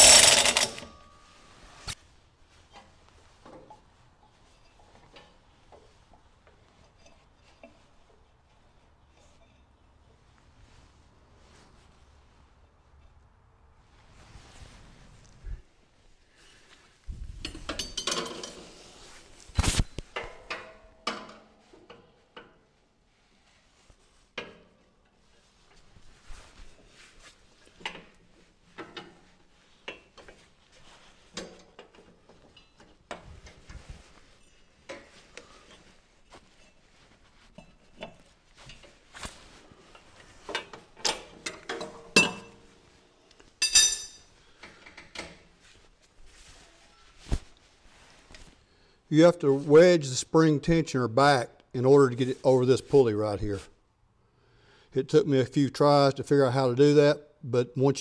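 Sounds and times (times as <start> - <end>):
metal clinking and knocking: 0.0 - 1.2, 17.4 - 18.8, 40.5 - 42.7, 43.6 - 45.4
metal clinks on steel deck: 43.6 - 44.2.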